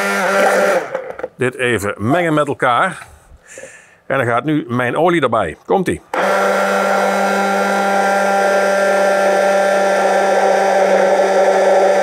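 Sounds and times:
stick blender running: 0.0 - 1.4, 6.1 - 12.0.

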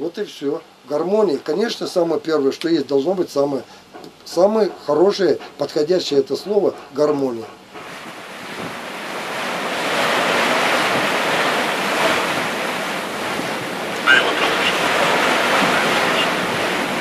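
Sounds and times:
wind: 0.0 - 17.0
sea waves washing: 3.4 - 17.0.

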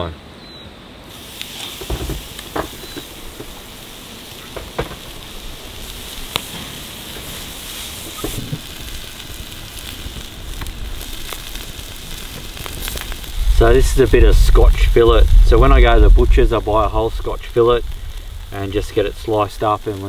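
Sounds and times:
fire crackling: 1.0 - 20.0
steaks sizzling on a grill: 1.0 - 20.0.

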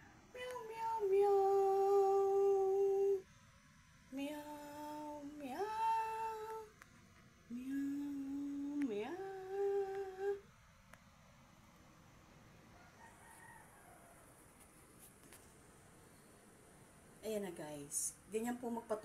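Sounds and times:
woman humming a lullaby: 0.4 - 3.2, 4.1 - 6.7, 7.5 - 10.5.

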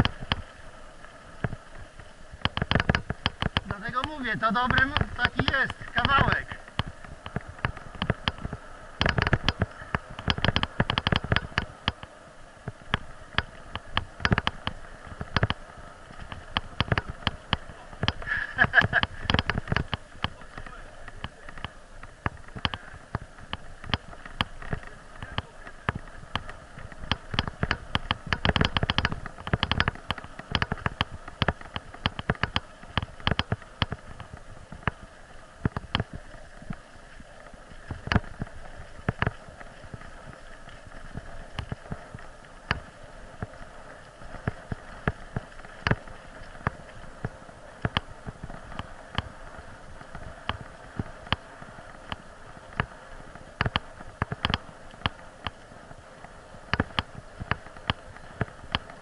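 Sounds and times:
bike knocking and rattling: 0.0 - 0.4, 1.4 - 36.8, 37.8 - 55.6
tyres rolling on dirt: 1.4 - 11.7, 12.7 - 35.1.

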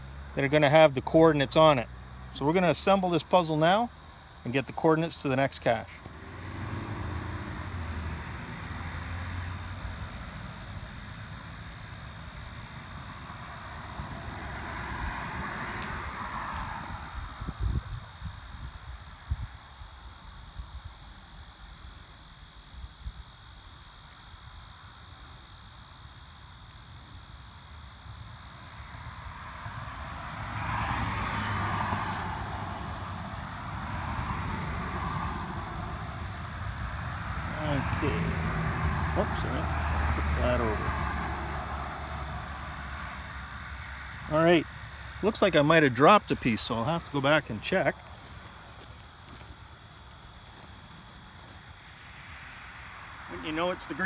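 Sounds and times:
distant engine drone: 0.0 - 17.2, 29.1 - 54.0
crickets trilling: 0.0 - 54.0
passing engine drone: 6.1 - 10.8, 30.0 - 44.4.

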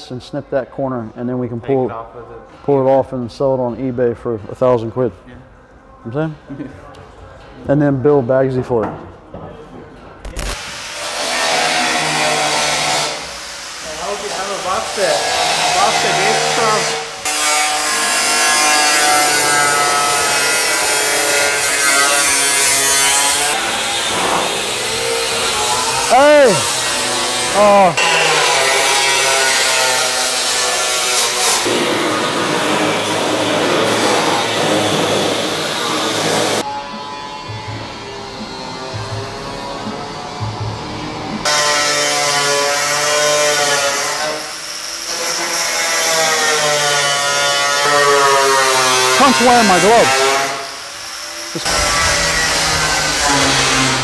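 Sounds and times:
angle grinder cutting metal: 10.3 - 40.2, 41.4 - 54.0.

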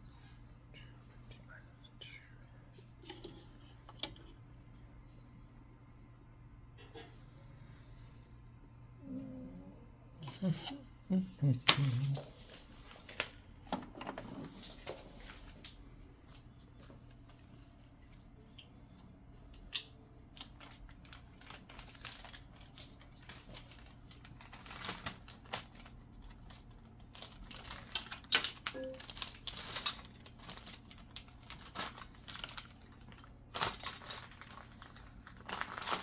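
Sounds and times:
faint steady hum: 0.0 - 36.0
plastic bags crinkling: 20.3 - 36.0.

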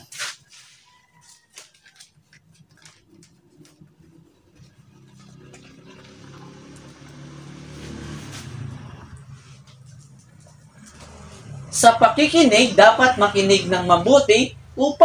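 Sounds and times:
paper chart rustling: 0.0 - 4.8
low engine-like hum: 2.6 - 15.0.

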